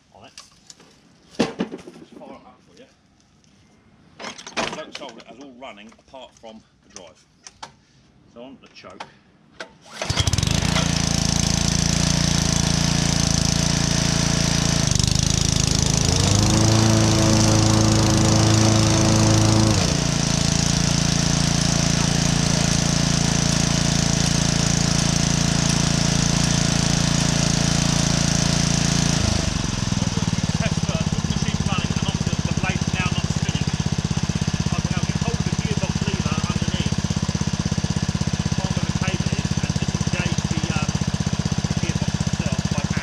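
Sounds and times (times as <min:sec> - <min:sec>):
lawnmower engine running: 0:09.9 - 0:43.0.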